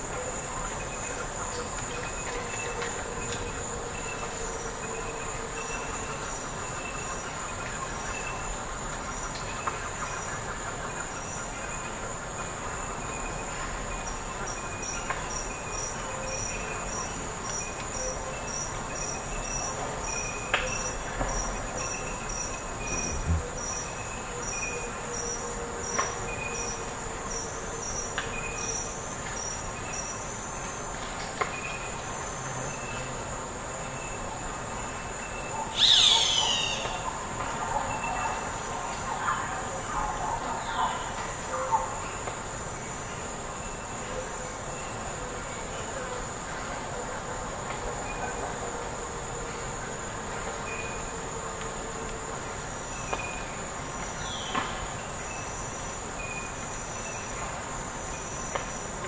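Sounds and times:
insect chirps: 0.0 - 59.0
insect drone: 0.0 - 59.0
bird calls: 35.3 - 38.6.

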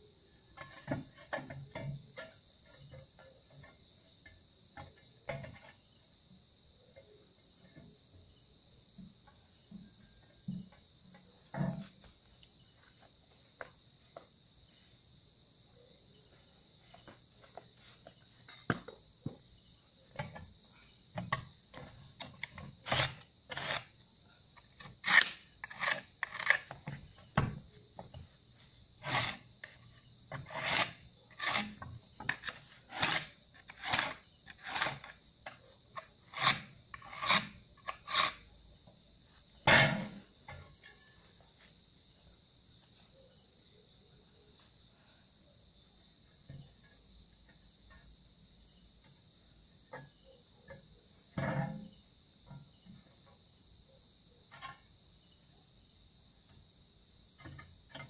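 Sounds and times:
high insect chirr: 0.0 - 58.0
hand tool scraping tiles: 0.6 - 3.8, 4.8 - 5.8, 21.2 - 24.0, 24.6 - 27.2, 29.0 - 38.5, 39.6 - 41.0.

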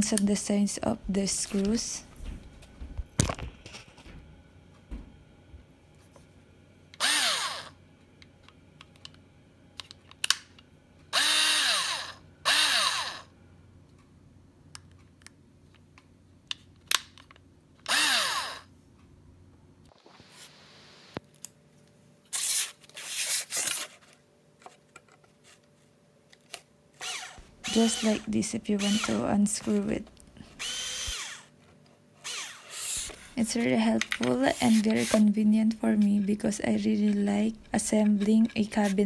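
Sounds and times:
drill driving screw into board: 7.0 - 7.7, 11.1 - 13.3, 17.9 - 18.6, 22.3 - 23.8, 27.0 - 29.2, 30.5 - 31.5, 32.2 - 33.3
cordless drill spinning: 7.0 - 7.8, 11.1 - 13.3, 17.9 - 18.7, 22.3 - 23.8, 27.0 - 29.2, 30.4 - 31.6, 32.2 - 33.4, 34.6 - 35.2.

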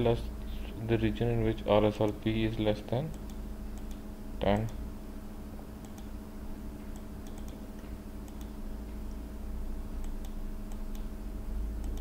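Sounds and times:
steady low hum: 0.0 - 12.0
computer mouse clicks: 3.1 - 4.8, 5.8 - 6.1, 6.9 - 9.2, 10.0 - 11.1, 11.8 - 12.0.

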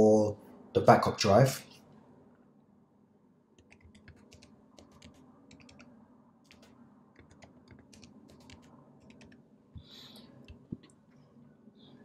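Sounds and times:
computer keyboard typing: 3.6 - 5.9, 6.5 - 9.4.

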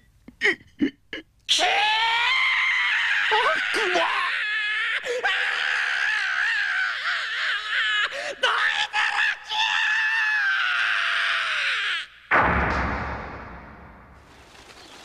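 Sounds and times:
long drawn-out yell: 1.5 - 12.1.

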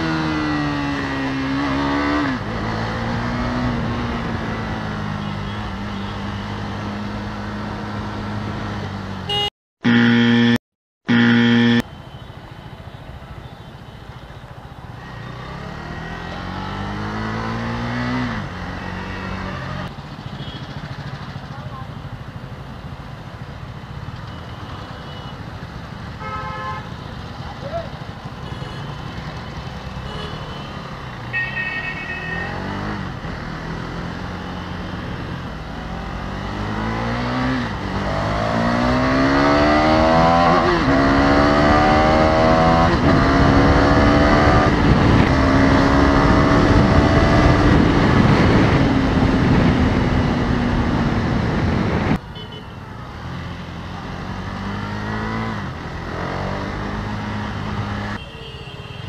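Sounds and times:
motorcycle engine accelerating: 0.0 - 5.2, 9.8 - 11.8, 15.1 - 19.9, 32.4 - 52.2, 53.1 - 58.2
vehicle horn toot: 9.3 - 12.2, 26.2 - 27.0, 30.0 - 32.7, 58.2 - 59.0
wind noise: 42.6 - 52.2.

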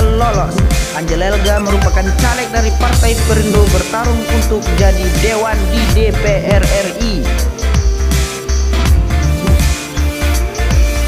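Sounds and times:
electronic music with pulsing bass: 0.0 - 11.0
sliding synth note: 3.0 - 4.5.

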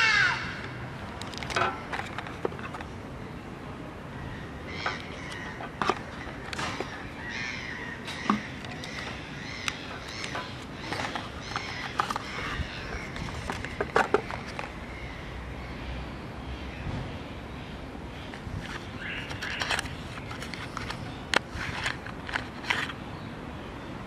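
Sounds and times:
birds chirping: 0.0 - 24.0
clicks and taps of handling: 13.1 - 14.7.

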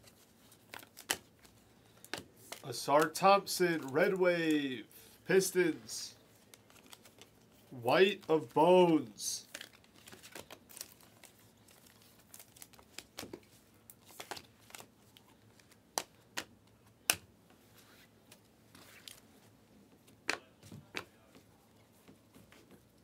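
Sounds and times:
cards sliding and rustling: 0.0 - 7.6, 17.6 - 19.3.

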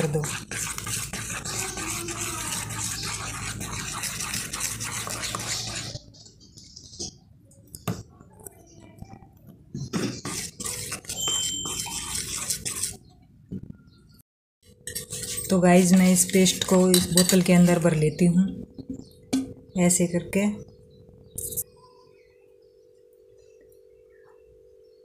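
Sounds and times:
spoon stirring thick batter: 0.0 - 13.7, 14.6 - 22.0
spoon clinking against bowl: 11.0 - 12.8, 14.8 - 17.6.

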